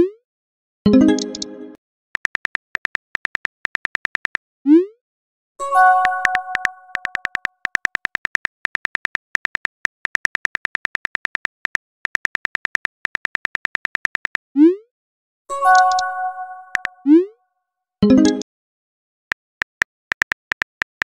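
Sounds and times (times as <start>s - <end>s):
keyboard typing clicks: 1.0s - 4.4s, 6.0s - 14.4s, 15.6s - 17.0s, 19.6s - 21.0s.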